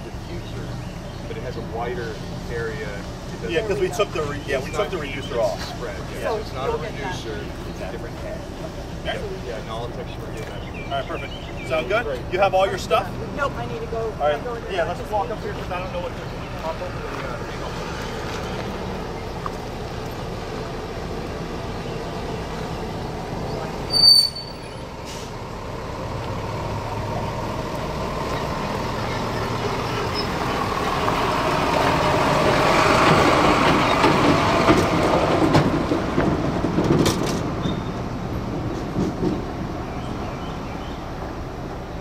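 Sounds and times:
heavy vehicle passing: 11.7s - 42.0s.

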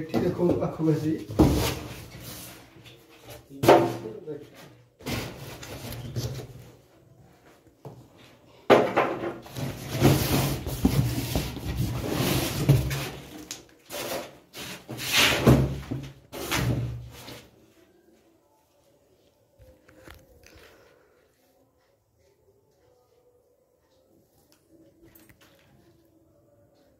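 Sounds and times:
cardboard and plastic scraping: 9.4s - 17.6s.

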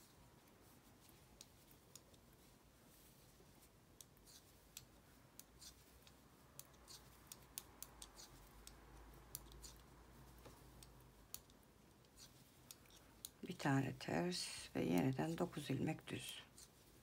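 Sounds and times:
knitting needles clicking: 1.0s - 2.4s, 4.0s - 13.6s
low steady hum: 4.9s - 17.0s.

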